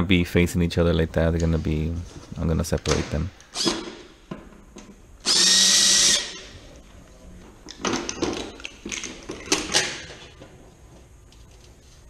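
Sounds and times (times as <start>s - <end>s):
cordless drill: 3.6s - 3.8s, 5.2s - 6.4s.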